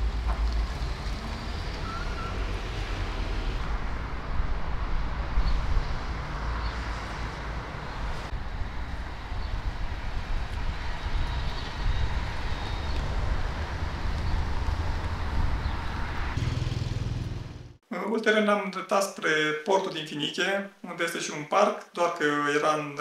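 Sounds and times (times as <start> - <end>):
street traffic: 0.0 - 17.8
wind buffeting microphone: 3.7 - 16.4.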